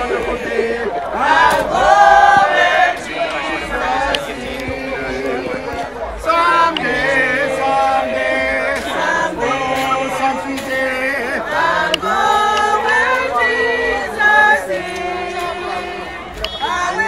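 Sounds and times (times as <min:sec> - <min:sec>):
congregation singing a hymn: 0:00.0 - 0:17.0.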